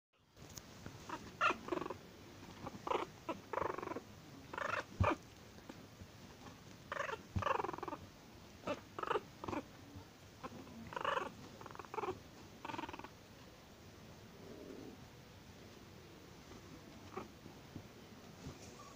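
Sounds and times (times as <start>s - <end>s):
small dog growling and yapping: 1.0s - 13.2s, 16.5s - 17.5s.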